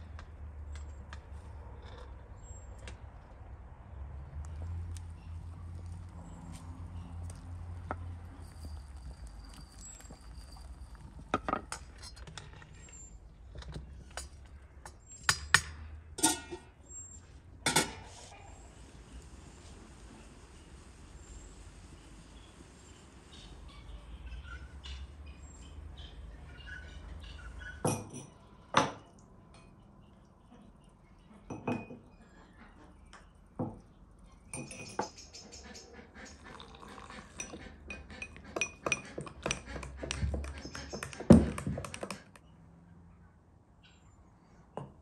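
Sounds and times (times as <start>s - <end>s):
metal spoon clinking against bowl: 16.2s - 16.6s.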